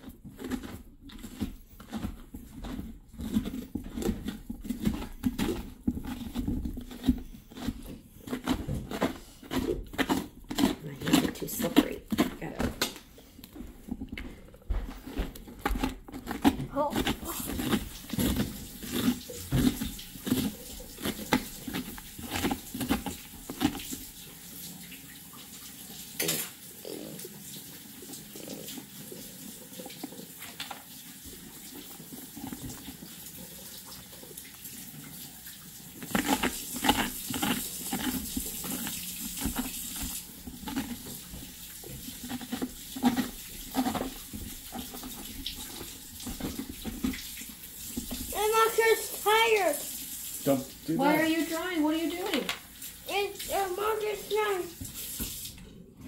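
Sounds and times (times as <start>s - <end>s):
water running from a tap: 0.0s - 56.0s.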